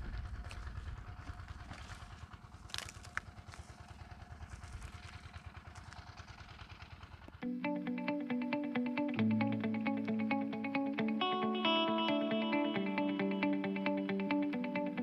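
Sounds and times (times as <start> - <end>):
pulsing engine rumble: 0.0 - 15.0
guitar music: 7.4 - 15.0.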